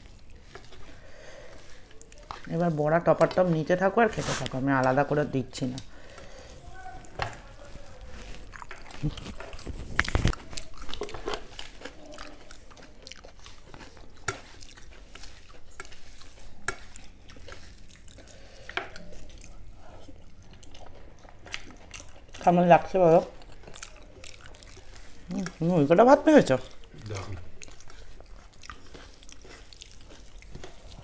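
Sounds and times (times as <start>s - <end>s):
rice mixed by hand on a plate: 0.0s - 20.4s
chewing: 0.0s - 31.0s
small clicks and crunches: 7.0s - 12.4s.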